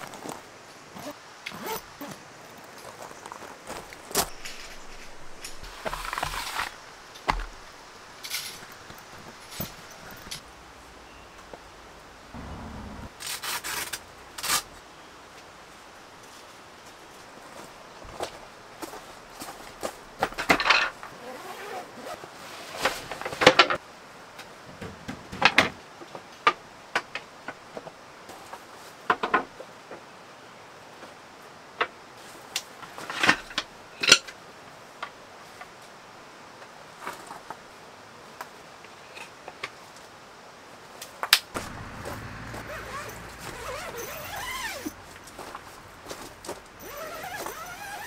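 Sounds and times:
canvas rustling: 0:03.7 - 0:10.4, 0:21.2 - 0:23.2, 0:41.6 - 0:48.0
rising squeaks: 0:12.4 - 0:14.8, 0:41.6 - 0:48.0.

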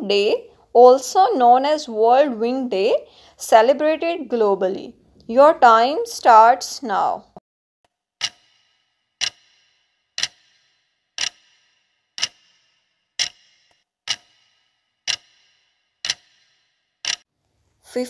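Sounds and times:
clock ticking: 0:08.2 - 0:17.3.

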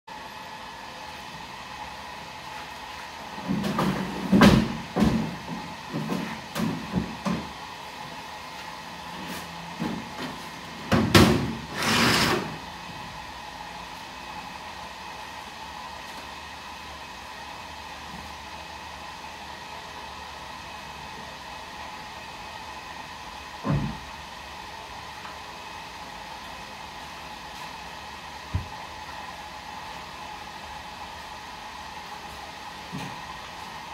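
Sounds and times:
steady background hum: 0:00.1 - 0:33.9.

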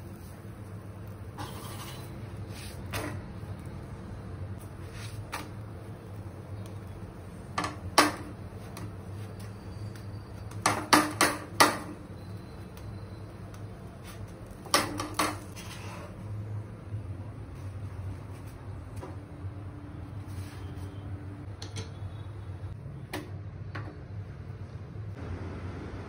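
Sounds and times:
wooden spatula knocking on griddle: 0:10.6 - 0:12.0.

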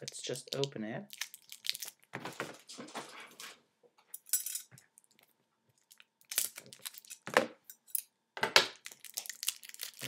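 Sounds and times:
packaging crackle: 0:00.0 - 0:02.4, 0:08.8 - 0:10.0.

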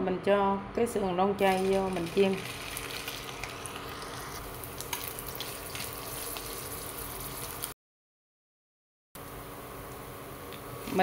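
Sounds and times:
food sizzling in oil: 0:01.4 - 0:07.8.

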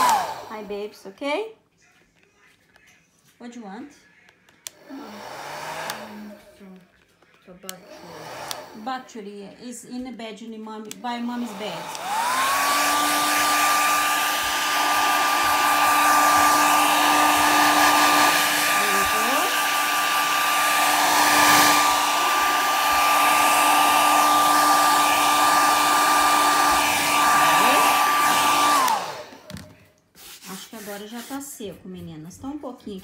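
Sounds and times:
hair dryer running: 0:00.0 - 0:00.9, 0:04.7 - 0:06.6, 0:07.6 - 0:09.2, 0:10.8 - 0:31.4.

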